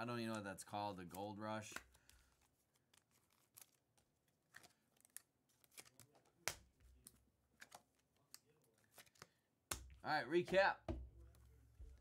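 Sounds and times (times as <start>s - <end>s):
cards and wrappers rustling: 0.0s - 9.5s.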